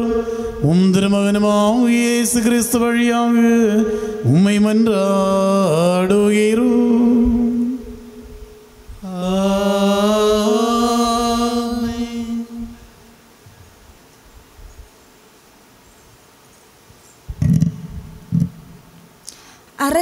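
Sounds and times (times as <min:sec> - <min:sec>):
priest chanting: 0:00.0 - 0:08.0, 0:09.0 - 0:13.2.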